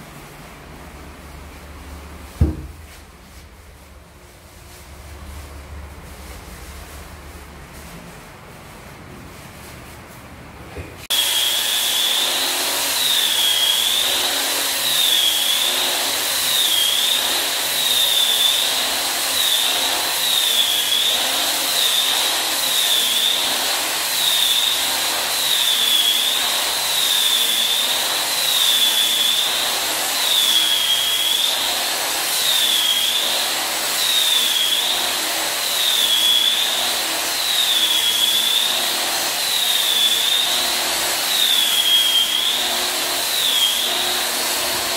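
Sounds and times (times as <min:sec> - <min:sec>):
angle grinder sanding wood: 0:11.1 - 0:44.9.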